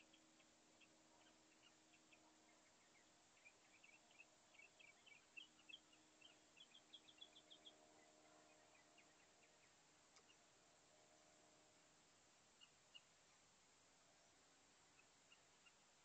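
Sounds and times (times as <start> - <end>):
mockingbird singing faintly: 0.0 - 11.6.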